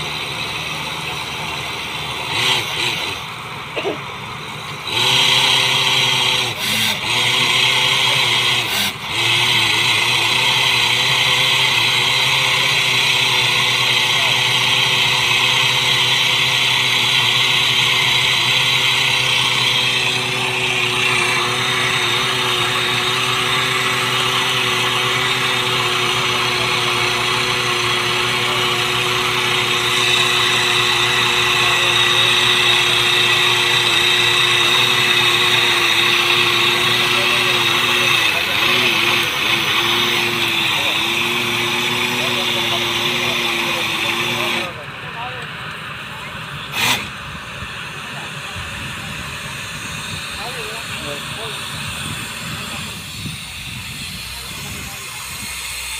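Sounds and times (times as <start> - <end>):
drilling rig engine drone: 0.0 - 55.9
strong hiss: 47.5 - 55.9.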